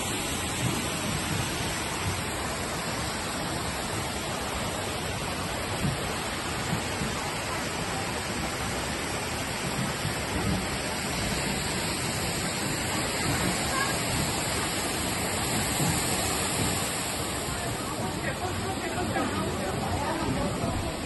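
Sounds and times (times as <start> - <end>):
stream water rushing over weir: 0.0 - 21.0.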